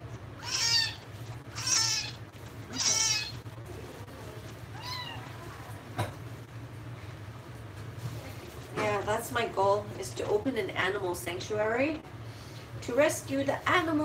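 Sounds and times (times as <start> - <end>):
kitten meowing: 0.4 - 3.4, 4.7 - 5.4.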